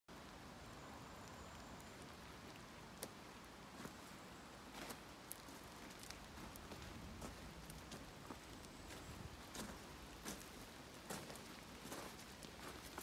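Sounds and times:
steady low background noise: 0.1 - 13.0
footsteps on gravel: 5.8 - 13.0.

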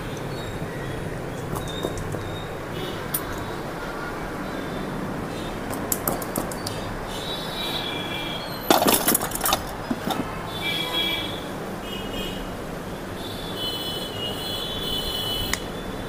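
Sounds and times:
plastic clicks and clacks: 1.4 - 2.3, 5.7 - 6.8, 8.7 - 10.4.

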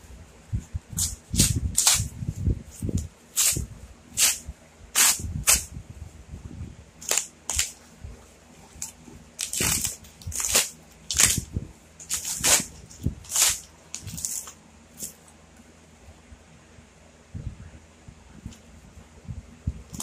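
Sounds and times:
cardboard ripping: 1.0 - 2.1, 3.4 - 3.6, 4.2 - 4.4, 5.0 - 5.7, 7.0 - 7.8, 8.8 - 15.2.

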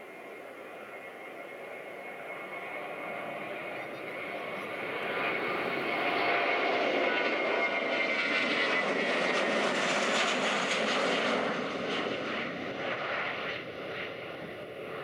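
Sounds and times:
jet engines roaring on takeoff: 0.0 - 15.0.

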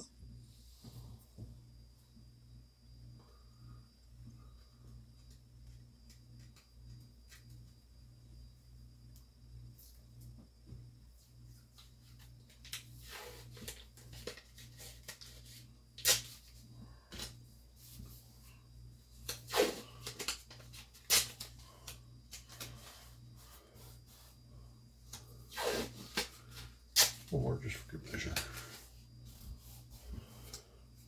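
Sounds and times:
steady low hum: 0.0 - 31.0
tape tearing and crinkling: 12.6 - 16.6, 19.2 - 21.6, 25.5 - 27.3.

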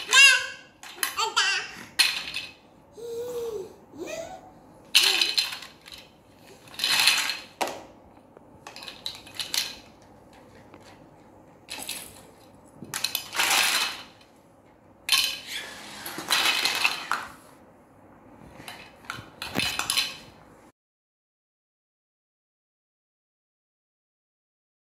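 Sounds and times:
plastic toy blocks clattering: 0.0 - 1.3, 2.0 - 2.6, 4.9 - 7.8, 8.6 - 11.0, 11.7 - 14.2, 15.1 - 17.4, 18.7 - 20.3.

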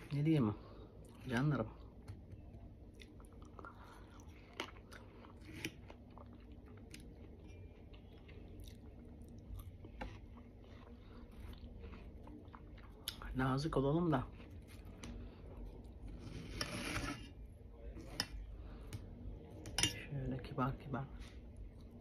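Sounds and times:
faint chewing: 2.3 - 13.4.

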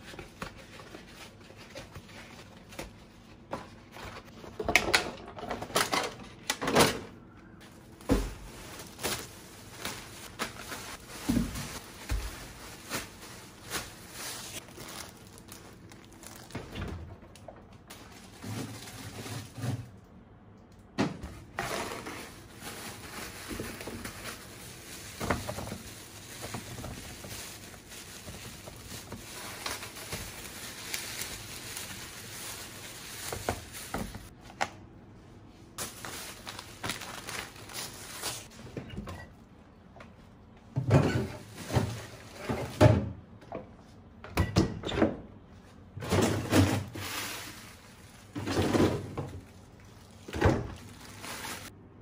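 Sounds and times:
plastic bags rustling: 7.6 - 16.8, 17.4 - 19.9, 21.4 - 34.4, 35.8 - 38.7, 46.0 - 51.8.

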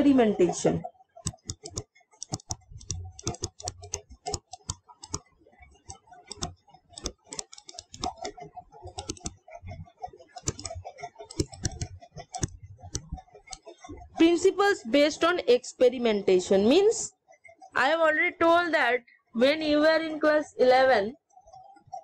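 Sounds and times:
stylus tapping on touchscreen: 1.2 - 9.4, 10.4 - 13.6.

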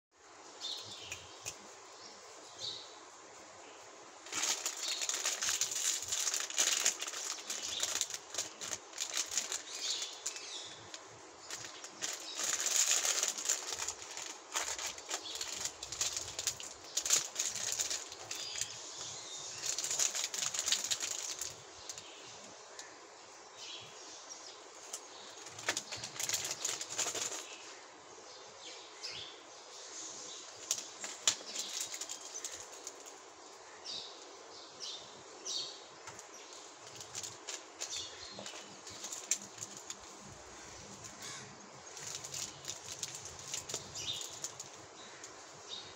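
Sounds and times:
sweet wrappers crinkling: 4.2 - 22.9, 24.7 - 27.6, 30.5 - 33.2, 36.1 - 45.4.

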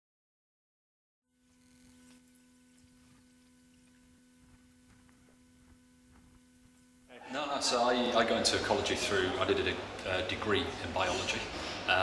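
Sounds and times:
faint steady hum: 1.3 - 12.0.

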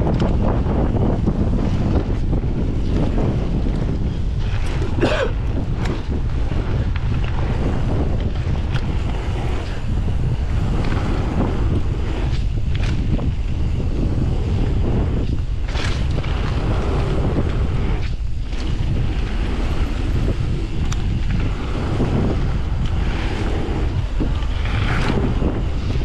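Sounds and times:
bike clicks: 0.0 - 26.0
bike tyres rolling on gravel: 0.0 - 26.0
wind buffeting microphone: 0.0 - 26.0.

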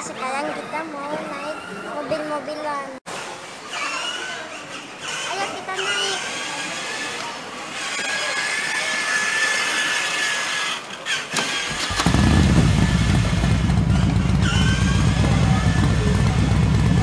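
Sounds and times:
toy car engine sound from speaker: 3.7 - 13.2, 13.9 - 17.0.

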